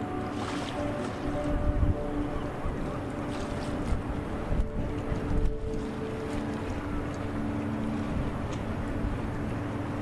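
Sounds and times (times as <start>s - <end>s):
boat diesel engine droning: 0.0s - 10.0s
wind rumbling on microphone: 0.0s - 10.0s.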